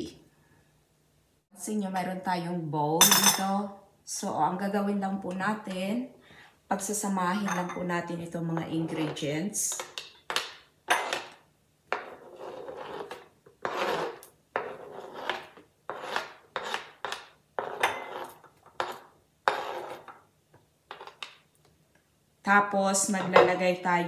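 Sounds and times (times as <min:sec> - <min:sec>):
metal spoon scraping cutting board: 0:10.9 - 0:20.2, 0:20.9 - 0:21.3.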